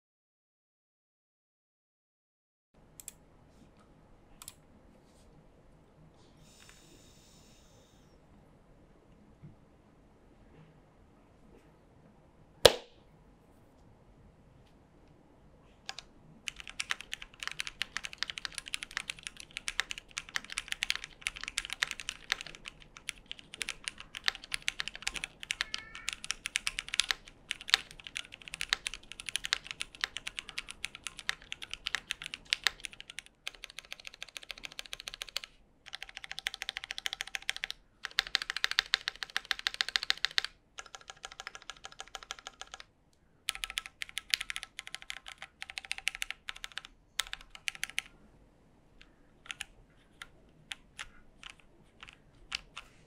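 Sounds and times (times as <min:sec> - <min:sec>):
mechanical keyboard typing: 0:15.9 - 0:42.9, 0:43.5 - 0:48.1, 0:49.0 - 0:53.0.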